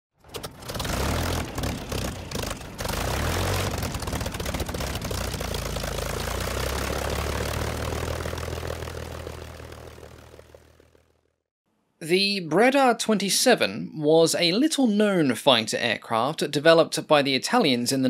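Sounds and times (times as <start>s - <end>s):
propeller aircraft piston engine: 0.2s - 11.4s.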